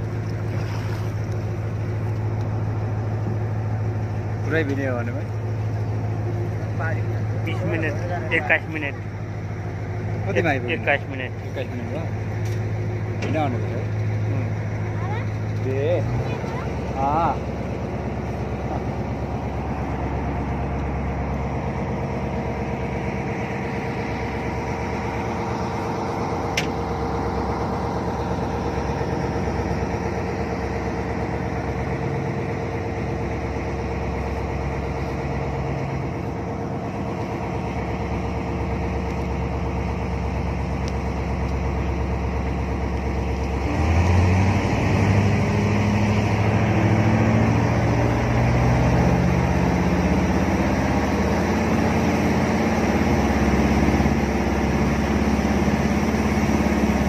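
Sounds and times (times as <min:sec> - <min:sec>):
jet boat engine running: 0:00.0 - 0:57.0.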